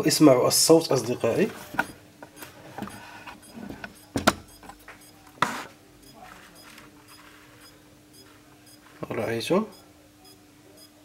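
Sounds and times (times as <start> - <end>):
faint steady hum: 0.0 - 11.0
faint electronic ticking: 2.2 - 5.3, 6.0 - 8.9, 9.6 - 11.0.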